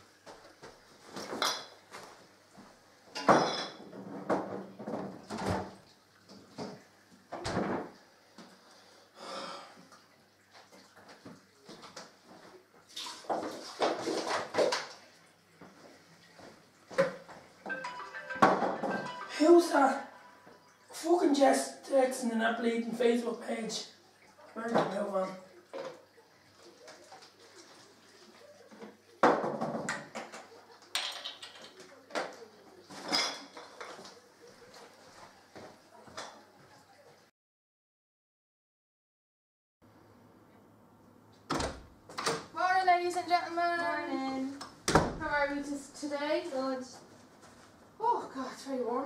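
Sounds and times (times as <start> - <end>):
glass bottles clinking: 1.4 - 1.8, 3.1 - 3.9, 17.7 - 20.6, 33.0 - 33.8
water splashing in sink: 9.8 - 17.8, 23.0 - 34.6.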